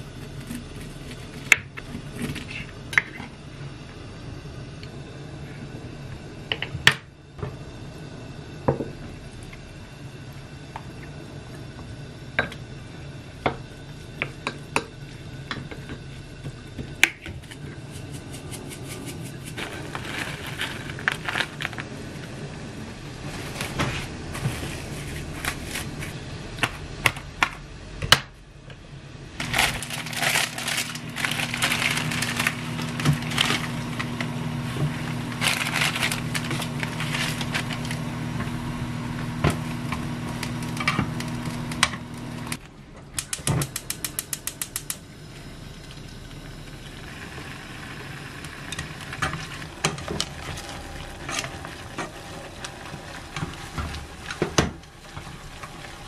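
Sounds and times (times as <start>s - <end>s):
steady hum: 0.0s - 56.0s
crinkling: 18.0s - 22.2s, 29.4s - 38.2s
gas stove igniter ticking: 43.1s - 45.0s.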